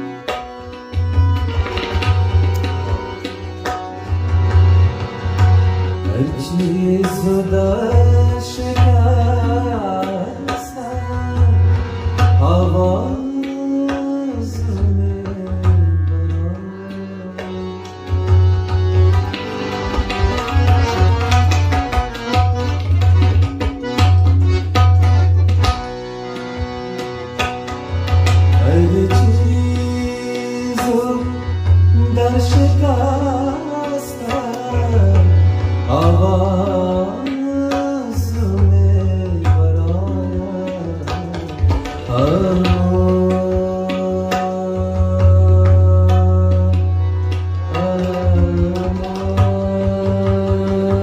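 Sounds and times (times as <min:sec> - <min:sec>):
harmonium chords: 0:00.0 - 0:51.0
tabla drumming: 0:00.0 - 0:51.0
man singing: 0:06.1 - 0:17.8, 0:28.5 - 0:47.0, 0:47.7 - 0:51.0.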